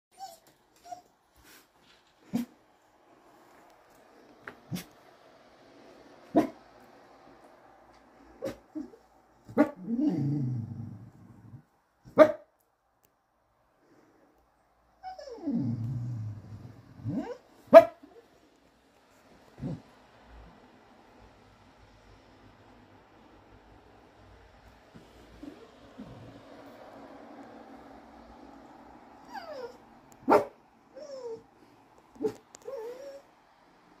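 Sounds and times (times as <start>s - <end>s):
dog whining: 0.1s - 1.1s, 8.4s - 9.0s, 15.0s - 17.4s, 29.2s - 31.5s, 32.2s - 33.4s
dog barking: 6.3s - 6.6s, 9.5s - 9.9s, 12.1s - 12.5s, 17.1s - 18.1s, 30.2s - 30.6s, 32.2s - 32.4s
dog growling: 9.6s - 11.6s, 15.0s - 17.4s, 19.6s - 19.9s, 25.4s - 26.4s.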